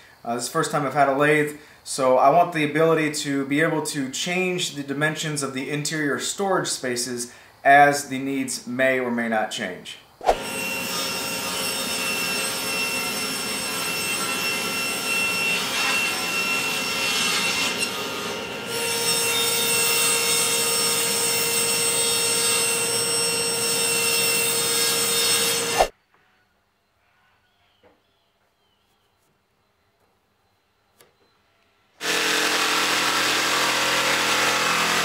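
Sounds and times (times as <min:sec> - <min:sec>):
table saw cutting plywood: 0:10.2 - 0:25.9, 0:32.0 - 0:35.0.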